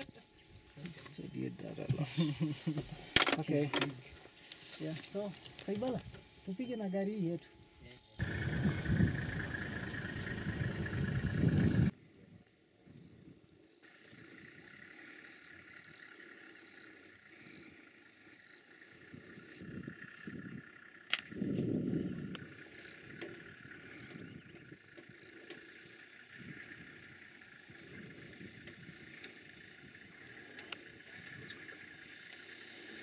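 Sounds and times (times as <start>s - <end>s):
insects chirping: 0.0s - 33.0s
pickup engine driving off: 8.2s - 11.9s
sharp click: 21.1s - 21.3s.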